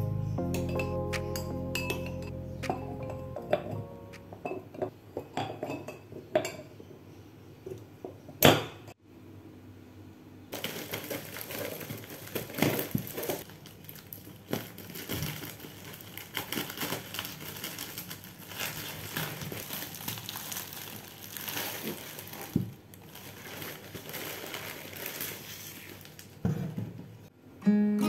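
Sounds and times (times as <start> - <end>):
plastic package crinkling: 10.6 - 26.4.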